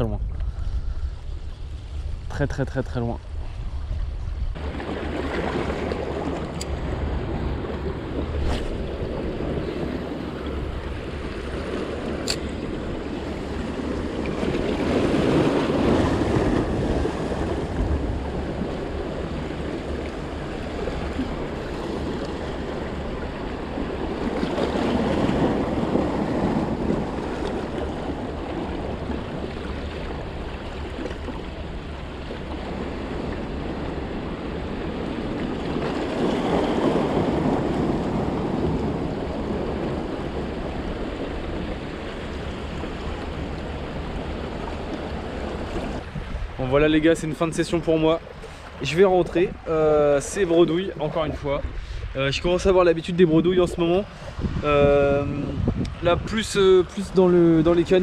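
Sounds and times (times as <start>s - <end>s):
wind on microphone: 0.0s - 47.1s, 48.7s - 58.0s
waves washing on rocks: 4.6s - 52.2s.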